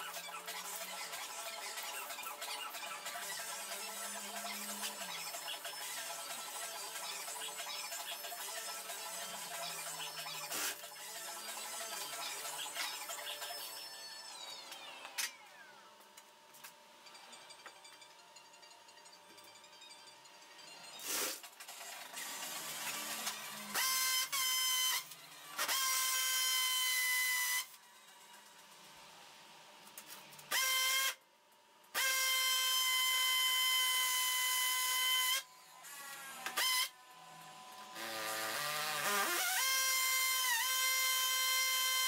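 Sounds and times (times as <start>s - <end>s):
cordless drill boring into brick: 22.1s - 27.7s, 30.5s - 31.2s, 32.0s - 36.9s, 37.9s - 42.0s.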